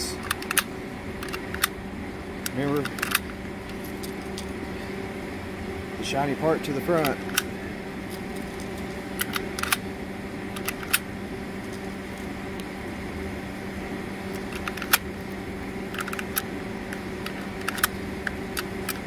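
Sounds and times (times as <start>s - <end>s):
steady low hum: 0.0s - 19.0s
cartridges clicking into rifle magazine: 2.7s - 4.4s, 9.2s - 9.8s, 16.0s - 19.0s.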